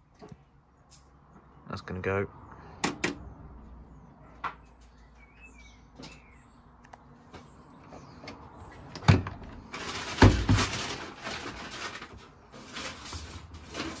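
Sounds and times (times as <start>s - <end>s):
rustling and handling noise: 7.2s - 14.0s.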